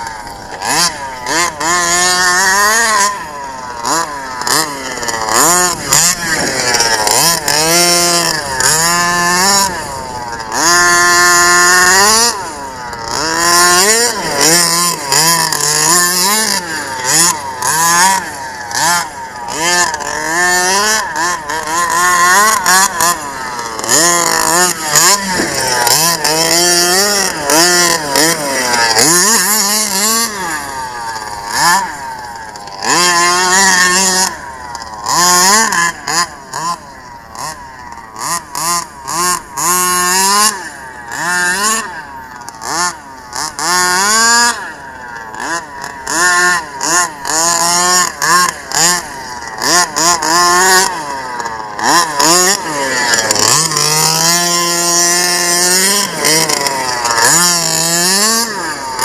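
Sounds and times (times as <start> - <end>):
two-stroke engine revving: 0.0 - 59.0.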